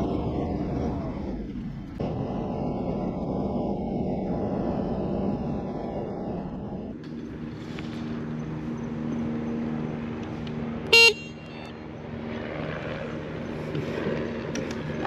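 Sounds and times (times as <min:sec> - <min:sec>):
scooter road noise and hum: 0:00.0 - 0:15.0
short loud horn beep: 0:10.9 - 0:11.7.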